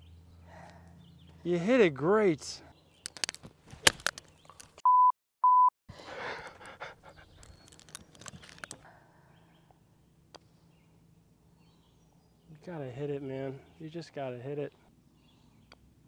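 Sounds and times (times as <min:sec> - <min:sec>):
censor beeps: 0:04.8 - 0:05.7.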